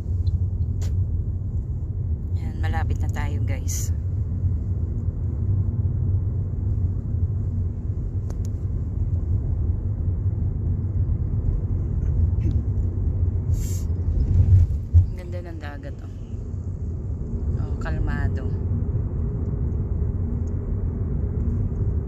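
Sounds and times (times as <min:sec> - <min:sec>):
car engine and tyre rumble: 0:00.0 - 0:22.0
short hiss: 0:13.5 - 0:13.9.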